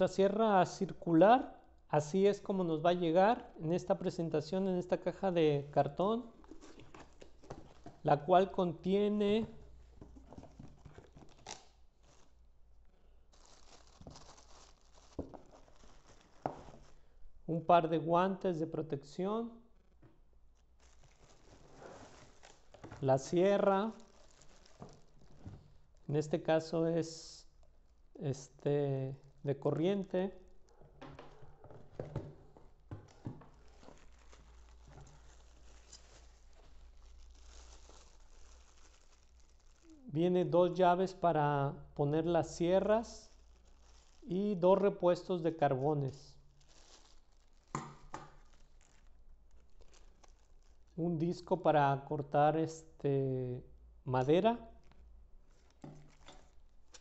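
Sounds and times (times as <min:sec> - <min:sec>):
plastic bag crinkling: 0:06.2 - 0:08.1, 0:09.5 - 0:12.5, 0:13.3 - 0:17.1, 0:20.5 - 0:26.1, 0:31.4 - 0:40.1, 0:42.8 - 0:44.4, 0:46.4 - 0:51.0, 0:54.8 - 0:57.0
cardboard box rustling: 0:10.0 - 0:12.2.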